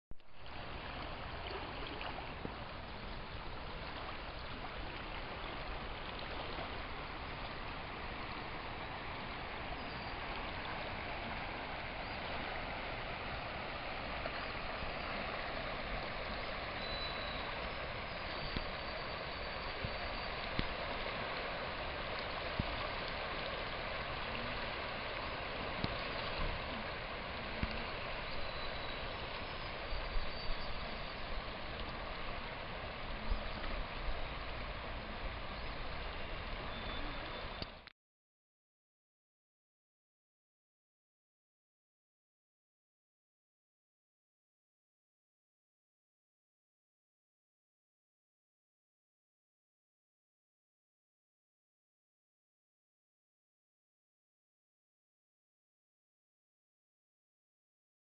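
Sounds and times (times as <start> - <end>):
fast-flowing river rushing: 0.4 - 37.7.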